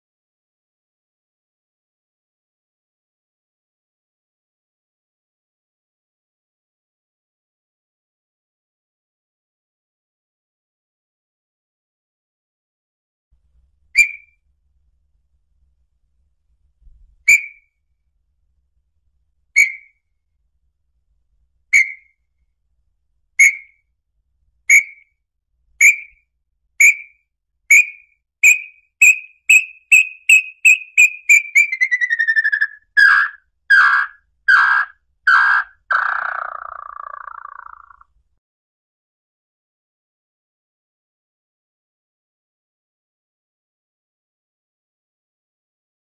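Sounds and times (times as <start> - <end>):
bird whistled notes: 14.0 - 14.4, 17.3 - 17.7, 19.6 - 20.0, 21.7 - 22.2, 23.4 - 23.8, 24.7 - 25.1, 25.8 - 26.2, 26.8 - 38.0.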